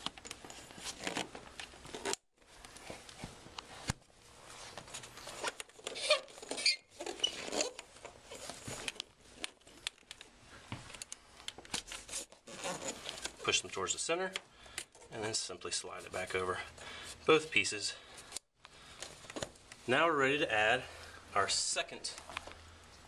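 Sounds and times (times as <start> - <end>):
rustling of kayak skin: 0.0 - 9.8, 11.8 - 13.5.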